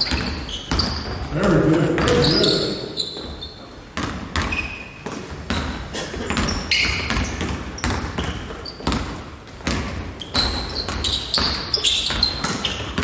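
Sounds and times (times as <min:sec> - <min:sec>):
basketball bouncing on hardwood: 0:00.0 - 0:01.3, 0:04.0 - 0:13.0
sneaker squeaks: 0:00.0 - 0:01.3, 0:01.9 - 0:13.0.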